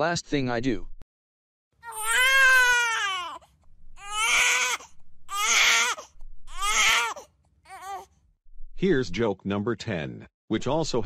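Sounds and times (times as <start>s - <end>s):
cartoon character wailing sobs: 1.8s - 3.2s.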